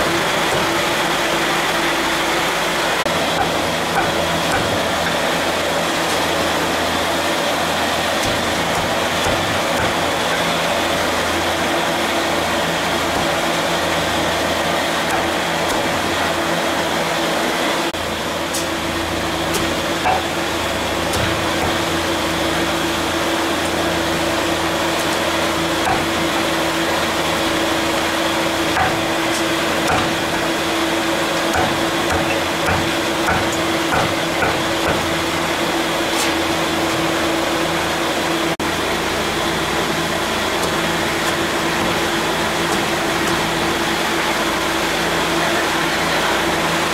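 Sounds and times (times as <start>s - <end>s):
mechanical hum and hiss: 0.0s - 46.9s.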